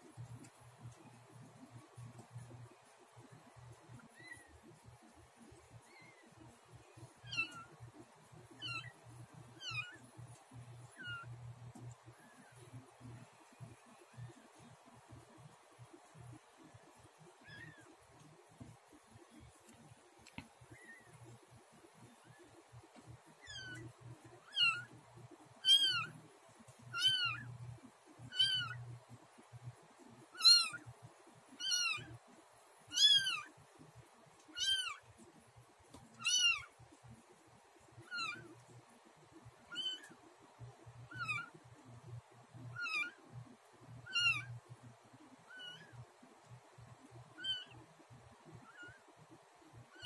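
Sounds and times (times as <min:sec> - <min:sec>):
newborn kitten mewing: 0:28.3 - 0:28.8, 0:36.2 - 0:36.7, 0:38.1 - 0:38.4, 0:41.1 - 0:41.5, 0:44.1 - 0:44.5, 0:47.4 - 0:47.8.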